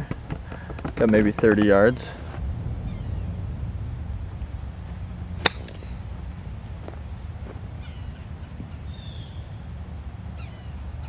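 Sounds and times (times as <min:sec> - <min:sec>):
golf club striking ball: 0:04.9 - 0:06.2.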